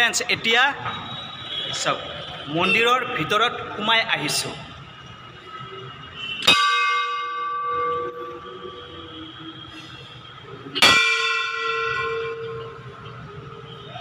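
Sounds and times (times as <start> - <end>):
brass bell ringing: 6.2 - 8.8, 10.8 - 13.2.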